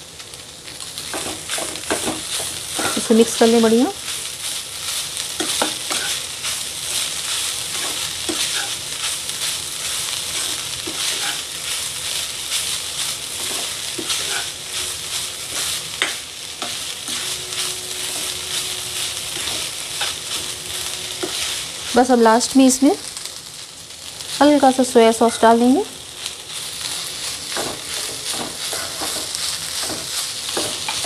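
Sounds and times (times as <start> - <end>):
vegetables sizzling in a pan: 0.0 - 31.0
spatula scraping a pan: 1.1 - 3.2, 5.4 - 6.2, 6.9 - 8.8, 10.3 - 11.6, 13.4 - 21.7, 26.8 - 31.0.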